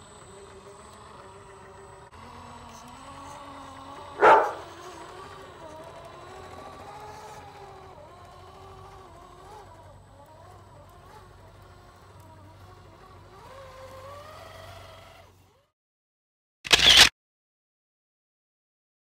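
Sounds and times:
toy car motor whining: 0:00.0 - 0:15.7, 0:16.7 - 0:17.1
dog barking: 0:04.2 - 0:04.8.

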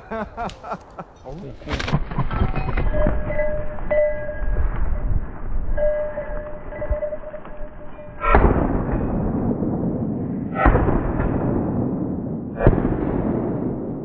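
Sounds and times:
deep booms: 0:06.5 - 0:14.0.

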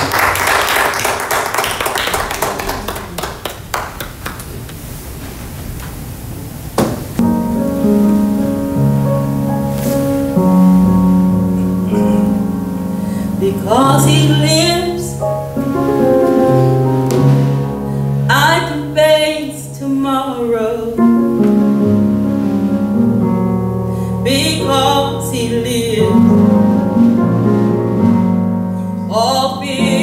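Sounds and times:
hand claps: 0:00.0 - 0:04.7
knock: 0:06.8 - 0:07.1
keyboard sustained chords: 0:07.2 - 0:30.0.

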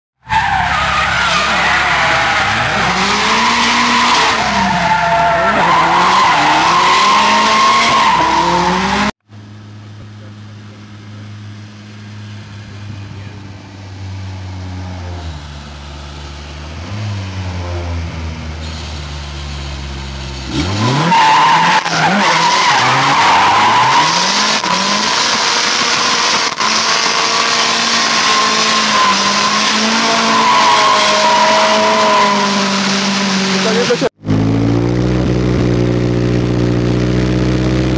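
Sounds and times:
tyres screeching: 0:00.2 - 0:09.1, 0:18.6 - 0:34.1
car engine revving: 0:00.3 - 0:37.9.

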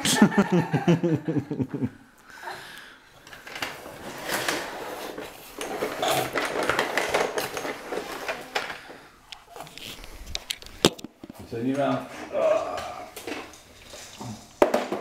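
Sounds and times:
baby walker rattling on wooden floor: 0:03.3 - 0:09.0.

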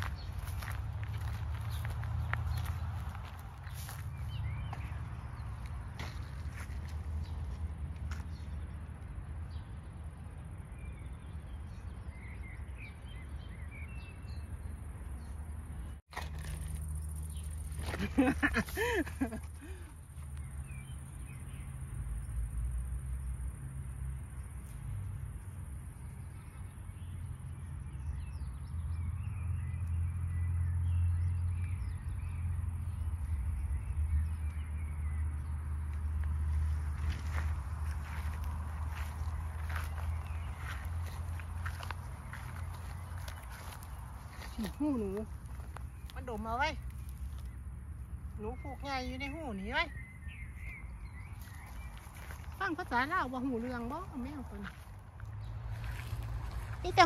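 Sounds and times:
birds chirping faintly: 0:26.0 - 0:57.0.

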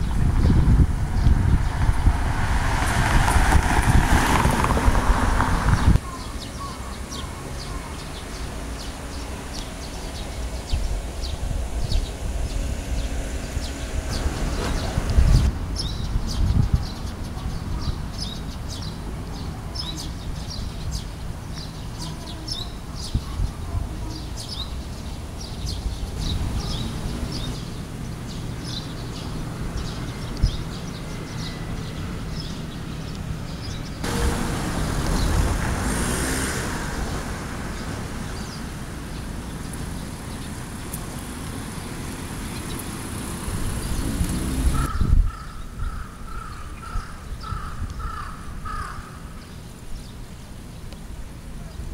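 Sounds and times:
wind on microphone: 0:00.0 - 0:06.4, 0:08.3 - 0:19.0, 0:22.5 - 0:32.5, 0:33.2 - 0:39.0, 0:42.6 - 0:48.8
vehicle passing: 0:00.0 - 0:21.3, 0:23.9 - 0:45.1
small birds chirping: 0:00.0 - 0:51.9
traffic rumble: 0:00.0 - 0:51.9
crows cawing: 0:44.8 - 0:49.3.

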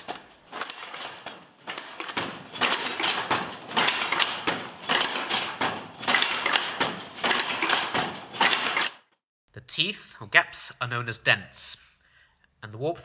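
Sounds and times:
loom clattering knocks: 0:00.0 - 0:09.1.

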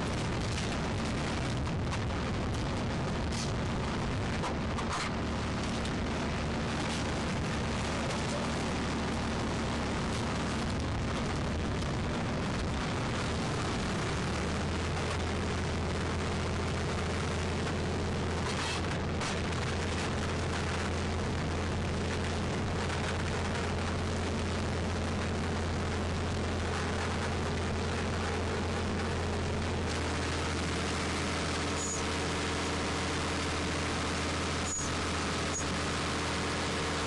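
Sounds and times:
wind: 0:00.0 - 0:24.1
diesel engine humming: 0:00.0 - 0:37.0.

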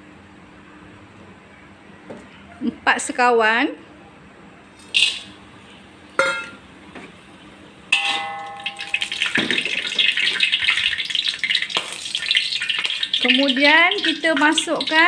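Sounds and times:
ringing metal clang: 0:06.2 - 0:06.6, 0:08.0 - 0:09.7
short metallic clink: 0:06.2 - 0:06.6, 0:08.0 - 0:09.1
spices sizzling in hot oil: 0:08.0 - 0:15.0.

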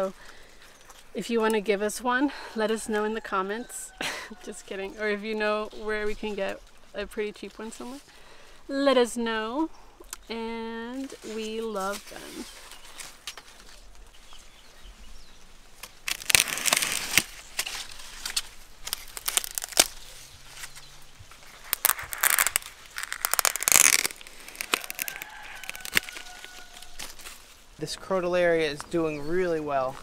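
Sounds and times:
dry leaves rustling and crackling: 0:11.0 - 0:30.0.

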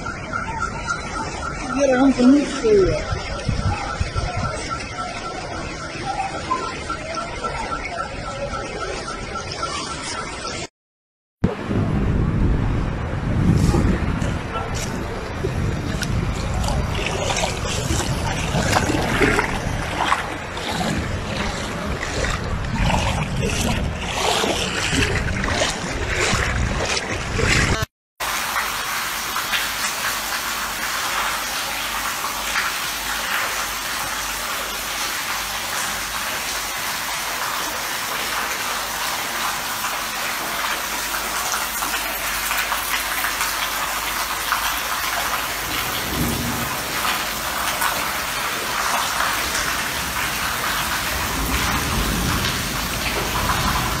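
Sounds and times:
floodwater rushing and splashing: 0:00.0 - 0:10.7, 0:12.6 - 0:54.0.

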